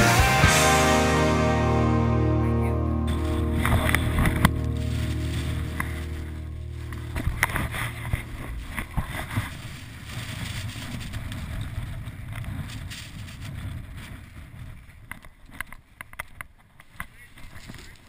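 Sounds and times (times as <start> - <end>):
skis rattling over snow: 3.1 - 18.0.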